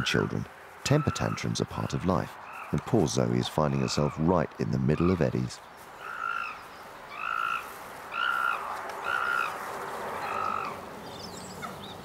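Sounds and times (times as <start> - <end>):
young chimpanzee screaming: 6.0 - 9.6, 10.2 - 10.8.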